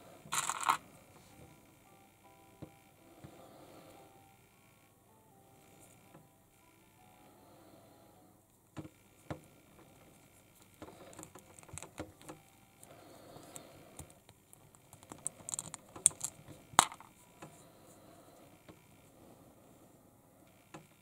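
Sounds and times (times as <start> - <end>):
plastic toy parts clicking: 0.3 - 0.8, 10.9 - 12.4, 14.0 - 17.1.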